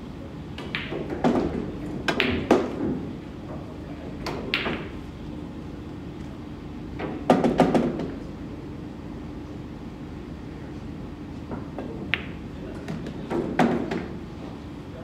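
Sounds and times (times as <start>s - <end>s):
pool balls clacking: 0.6s - 2.9s.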